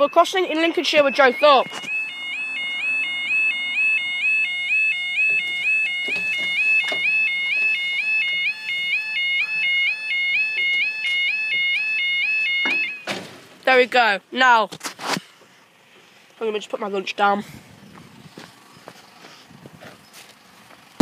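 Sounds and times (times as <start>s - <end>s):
two-tone electronic warning alarm: 0.0s - 13.2s.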